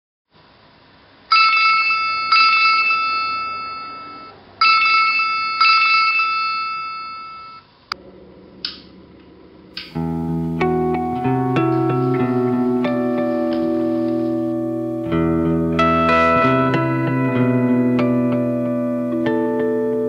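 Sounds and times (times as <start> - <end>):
mobile phone ringing tone: 1.3 - 7.7
guitar music: 9.8 - 20.0.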